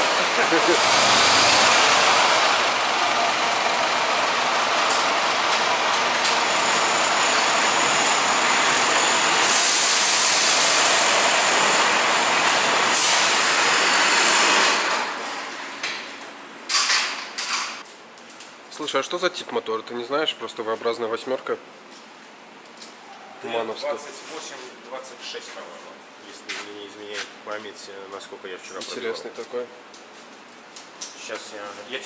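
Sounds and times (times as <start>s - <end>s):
high-pressure water spray hissing: 0.0s - 14.9s.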